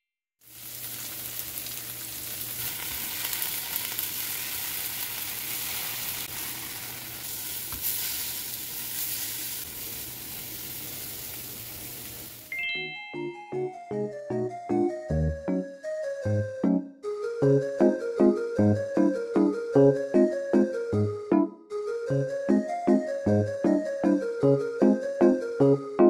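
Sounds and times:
tofu sizzling in hot oil: 0:00.4 - 0:12.5
light music with mallet notes: 0:12.5 - 0:26.0.

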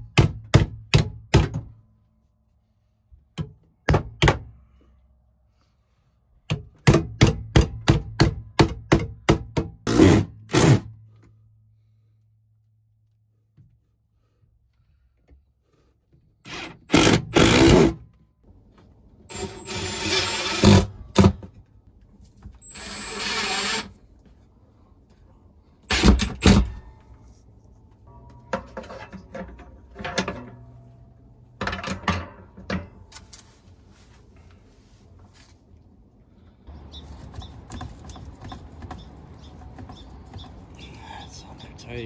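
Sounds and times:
power drill driving screws: 0:19.3 - 0:20.9, 0:22.6 - 0:23.9.

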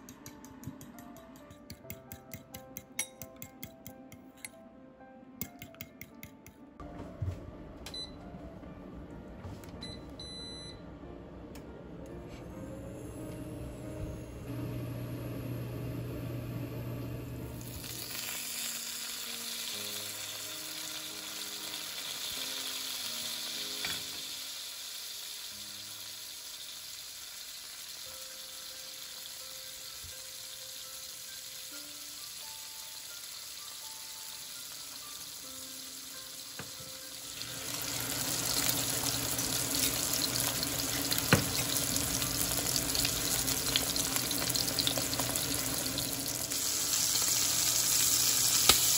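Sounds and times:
fish frying in oil: 0:17.6 - 0:36.5, 0:37.3 - 0:48.9
egg crackling in pan: 0:17.7 - 0:30.3, 0:37.4 - 0:48.9.

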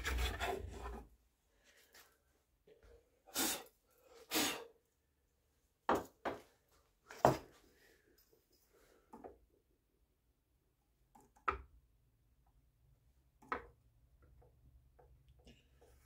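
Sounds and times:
puffs of breath: 0:03.3 - 0:04.8.

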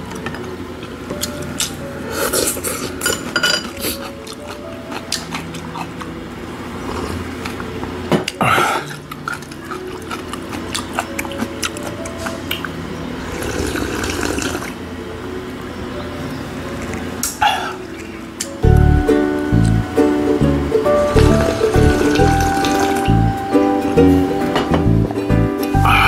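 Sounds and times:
slurping noodles and broth: 0:06.8 - 0:07.5, 0:13.2 - 0:14.8.

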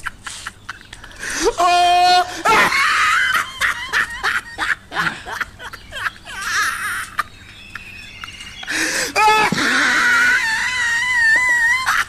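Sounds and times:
man panting: 0:08.7 - 0:09.2.

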